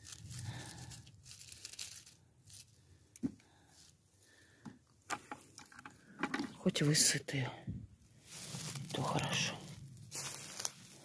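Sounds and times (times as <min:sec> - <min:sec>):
rustling through leaf litter: 0:00.0 - 0:03.0, 0:08.1 - 0:11.0.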